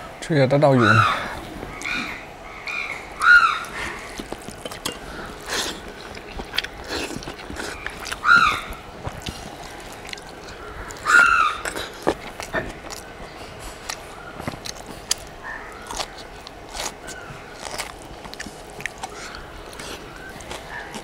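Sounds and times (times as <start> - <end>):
chewing and smacking: 3.2 - 21.0.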